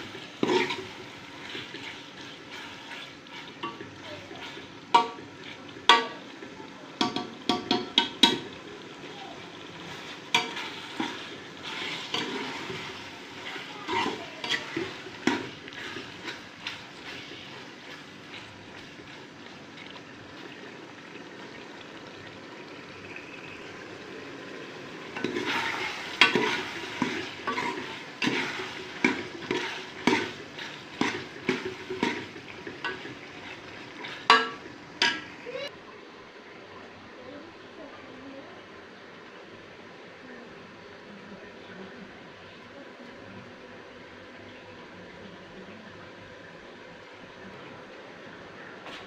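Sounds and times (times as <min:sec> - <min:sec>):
meat sizzling in oil: 0:00.0 - 0:35.7
metal spoon scraping a pot: 0:10.3 - 0:16.8.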